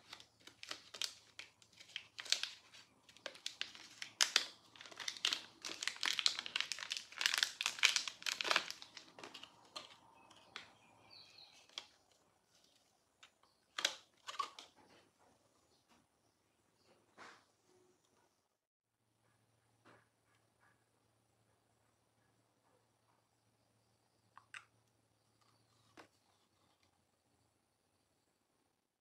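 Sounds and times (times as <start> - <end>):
plastic packaging crinkling: 0.0 - 14.7.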